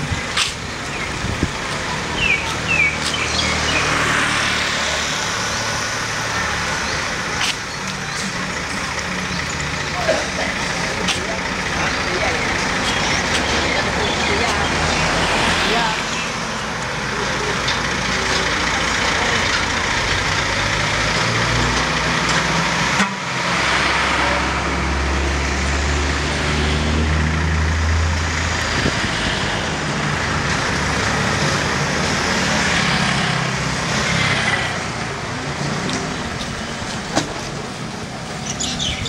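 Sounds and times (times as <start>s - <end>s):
traffic driving past: 0.0s - 39.0s
low engine rumble: 4.9s - 22.5s.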